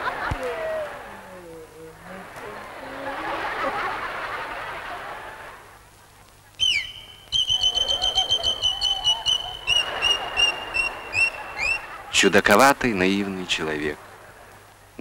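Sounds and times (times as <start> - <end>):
audience laughter: 0.0 - 1.3, 2.2 - 5.8, 7.6 - 14.7
shrill whistle tooting: 6.6 - 11.9.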